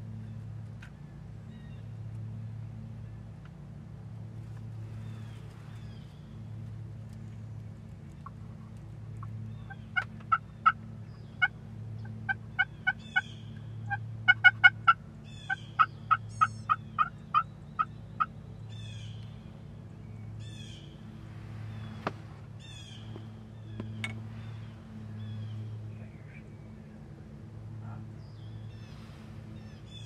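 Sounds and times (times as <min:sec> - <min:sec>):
songbirds chirping: 0:00.0 - 0:30.0
wild turkeys calling: 0:08.1 - 0:19.4, 0:21.7 - 0:25.8.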